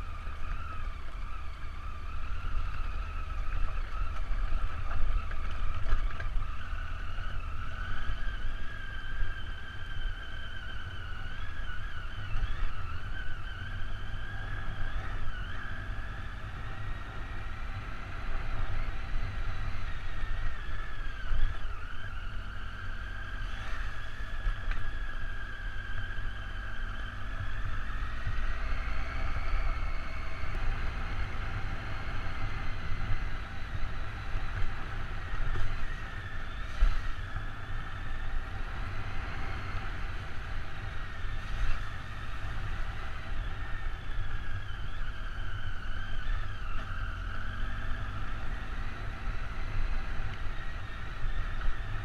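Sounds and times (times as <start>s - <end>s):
wind rumble on microphone: 0.0s - 52.0s.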